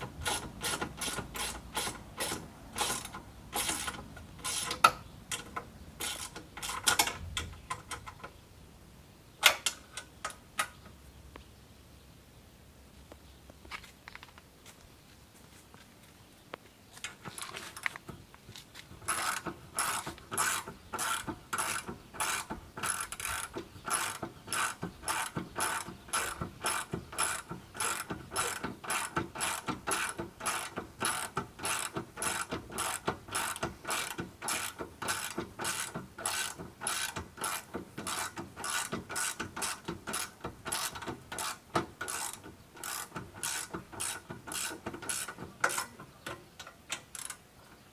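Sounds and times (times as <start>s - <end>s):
ratchet wrench clicking: 0.2s - 8.0s, 19.0s - 46.0s, 46.9s - 47.4s.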